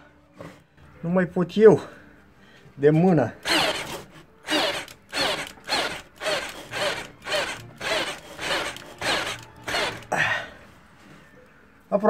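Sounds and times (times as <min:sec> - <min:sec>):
cordless drill driving screw into wood: 0:03.4 - 0:10.2.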